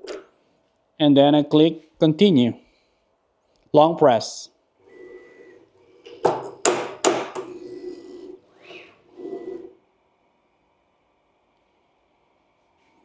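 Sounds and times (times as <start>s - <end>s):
machine motor hum and whine: 4.8s - 12.7s
sharp knocks: 6.2s - 7.5s.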